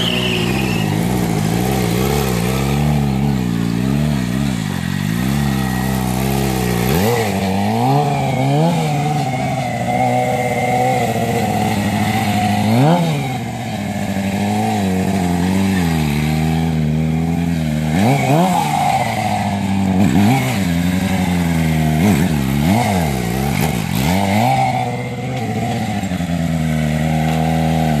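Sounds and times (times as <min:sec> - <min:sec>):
motorcycle engine revving: 0:00.0 - 0:28.0.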